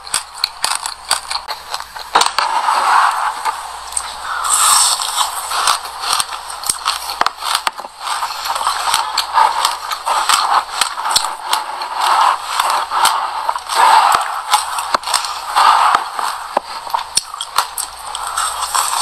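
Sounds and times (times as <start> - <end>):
chewing crunchy food: 0.0 - 2.4, 3.9 - 19.0
seeds crackling: 0.0 - 19.0.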